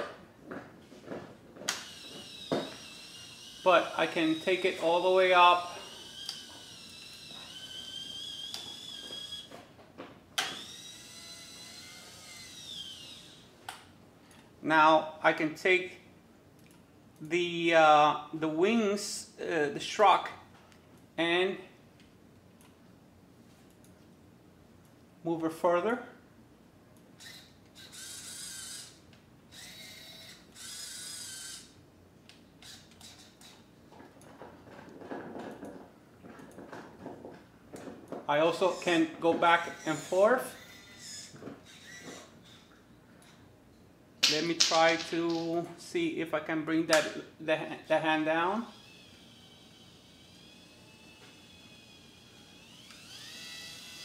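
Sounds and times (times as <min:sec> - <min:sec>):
servo motors whining: 0:01.7 - 0:09.6, 0:10.4 - 0:13.5, 0:27.2 - 0:31.8, 0:32.6 - 0:33.6, 0:38.4 - 0:42.8, 0:48.7 - 0:54.0.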